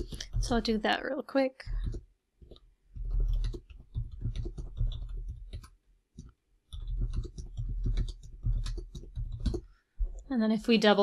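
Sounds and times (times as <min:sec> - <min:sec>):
typing on computer keyboard: 0:00.0 - 0:00.6, 0:01.7 - 0:09.7.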